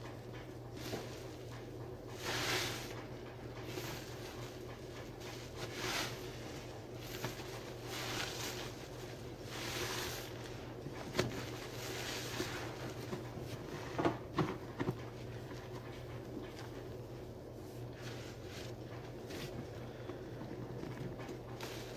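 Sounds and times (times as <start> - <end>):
soapy sponge squishing: 0.7 - 13.8.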